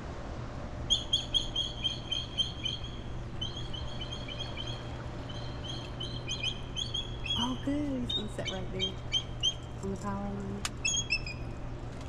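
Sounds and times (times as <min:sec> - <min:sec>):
eagle chirping whistles: 0:00.9 - 0:09.7, 0:10.8 - 0:11.6.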